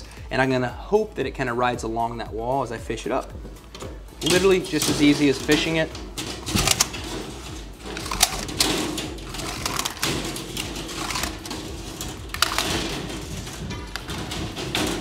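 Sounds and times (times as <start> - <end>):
steel tape clicking and scraping: 3.1 - 15.0.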